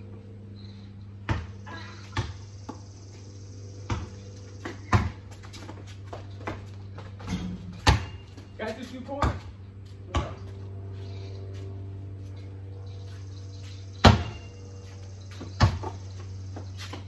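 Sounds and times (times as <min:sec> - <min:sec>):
steady low hum: 0:00.0 - 0:17.0
basketball dribbling thuds: 0:01.2 - 0:02.9, 0:03.8 - 0:10.6, 0:14.0 - 0:14.6, 0:15.2 - 0:17.0.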